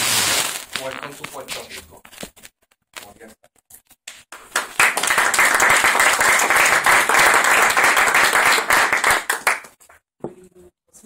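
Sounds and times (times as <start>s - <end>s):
audience applauding: 4.4s - 9.8s.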